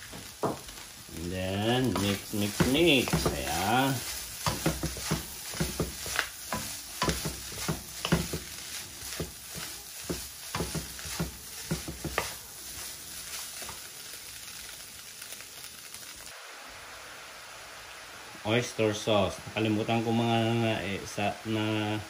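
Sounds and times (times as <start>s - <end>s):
meat sizzling in frying pan: 0.0s - 22.0s
wooden spoon scraping pan: 1.9s - 13.8s.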